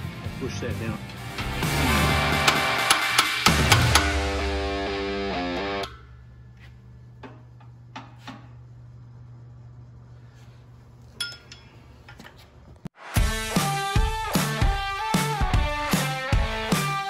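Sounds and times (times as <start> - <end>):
steady low hum: 4.0 - 12.9
hammer and punch clinking on metal: 11.2 - 11.7.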